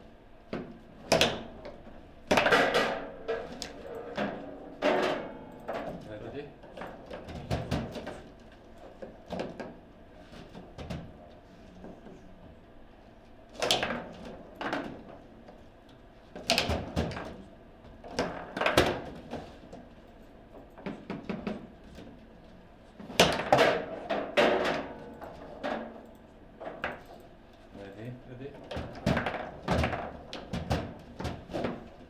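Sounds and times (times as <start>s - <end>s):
foosball ball clacking: 2.3s - 5.8s, 23.2s - 27.1s, 28.8s - 32.0s.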